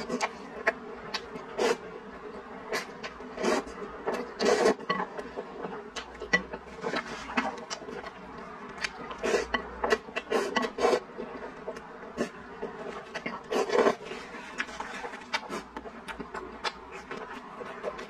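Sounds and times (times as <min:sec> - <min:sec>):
person slurping noodles: 0:02.7 - 0:04.9, 0:09.2 - 0:11.1, 0:13.3 - 0:15.8
chewing: 0:02.7 - 0:18.0.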